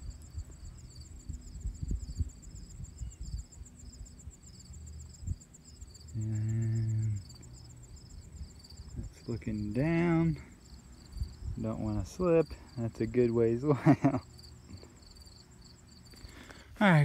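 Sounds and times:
insects chirping: 0.0s - 17.0s
man humming hmm: 6.1s - 7.3s.

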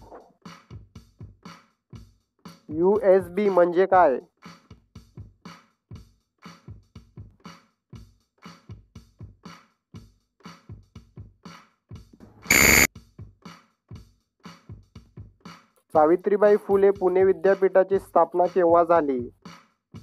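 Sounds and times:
electronic drum beat: 2.0s - 4.1s, 16.7s - 19.4s
loud buzzer tone: 12.5s - 12.9s.

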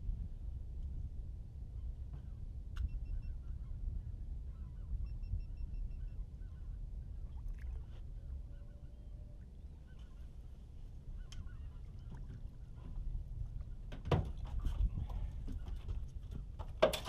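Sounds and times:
wind rumble on microphone: 0.0s - 17.0s
faint bird calls: 1.8s - 13.8s.

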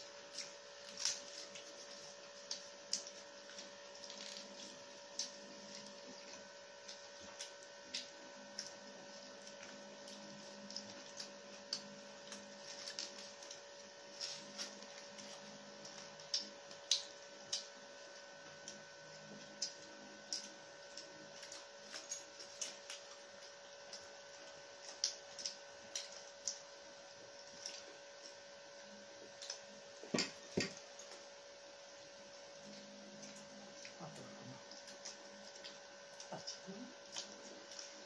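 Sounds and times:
electrical hum: 0.0s - 38.0s
paper wrappers crinkling: 0.2s - 16.9s.

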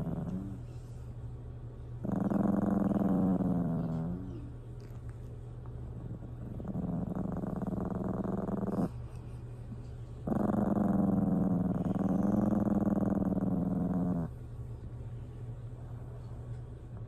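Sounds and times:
small dog growling: 0.0s - 0.7s, 2.0s - 5.2s, 5.9s - 9.2s, 10.2s - 14.4s.

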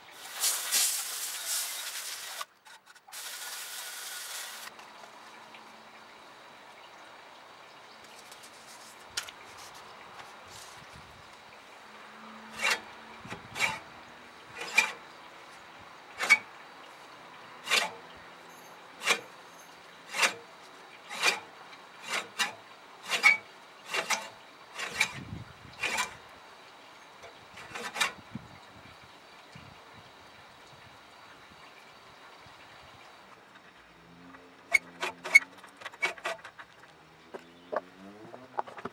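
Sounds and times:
reel mower blades scraping snip: 12.5s - 13.9s, 14.5s - 15.0s, 16.2s - 16.5s, 17.6s - 18.1s, 19.0s - 19.4s, 20.1s - 20.4s, 21.1s - 25.2s, 25.8s - 26.2s, 27.6s - 28.2s, 34.7s - 36.8s.

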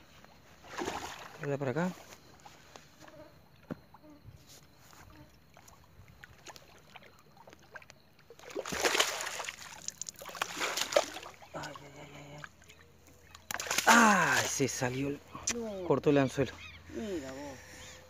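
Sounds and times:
fish splashing in water: 0.6s - 1.5s, 5.6s - 11.8s, 12.6s - 14.6s.

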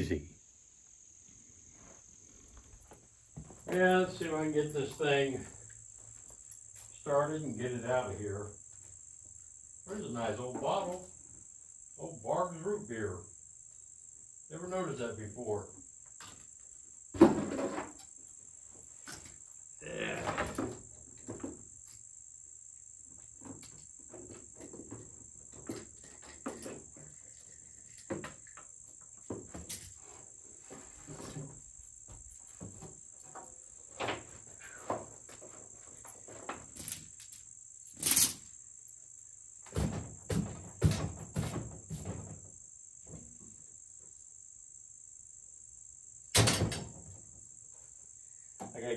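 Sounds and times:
crickets trilling: 0.0s - 48.9s
objects knocking and clattering: 17.2s - 18.0s.

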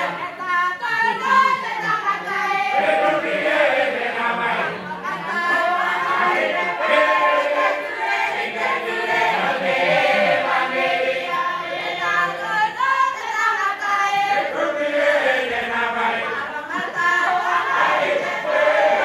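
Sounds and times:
choir singing in harmony: 0.0s - 19.0s.

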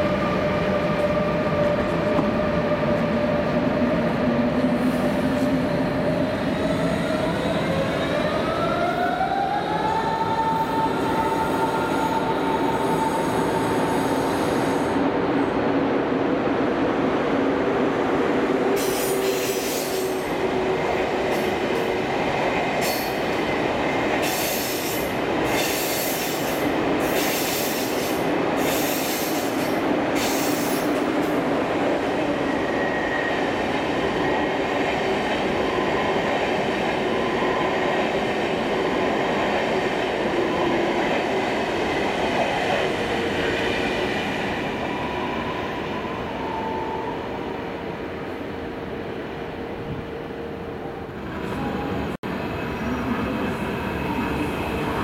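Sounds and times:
train wheels squealing and clattering: 18.8s - 20.3s, 22.8s - 23.2s, 24.2s - 31.0s.

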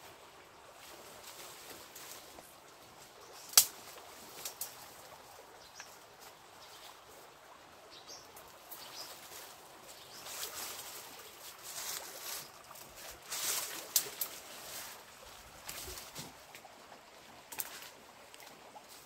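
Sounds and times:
rustling through dry brush: 0.7s - 5.2s, 8.4s - 16.7s
twig snapping: 3.5s - 4.7s, 13.9s - 14.3s, 17.5s - 17.8s.

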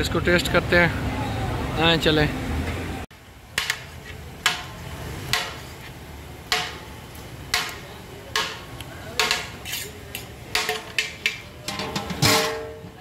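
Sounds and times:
metal ladle knocking on metal pot: 10.5s - 13.0s.

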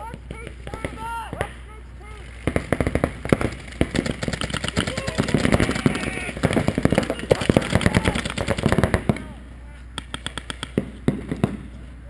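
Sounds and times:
paintball markers firing: 2.4s - 11.7s.

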